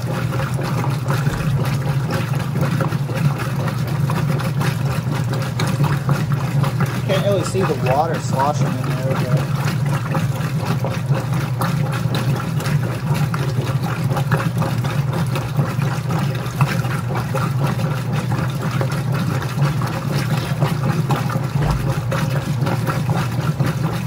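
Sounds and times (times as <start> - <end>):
washer motor humming: 0.0 - 24.0
water sloshing in washer tub: 0.0 - 24.0.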